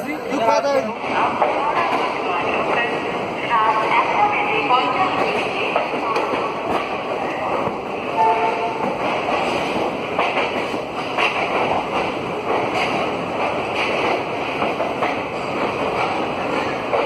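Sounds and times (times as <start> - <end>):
train rumble: 0.0 - 17.0.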